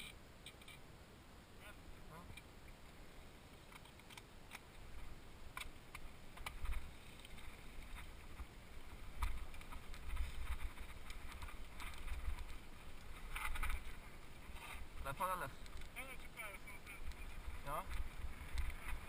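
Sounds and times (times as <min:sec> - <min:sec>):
bike rattling over gravel: 0:06.3 - 0:19.0
wind buffeting microphone: 0:16.4 - 0:19.0.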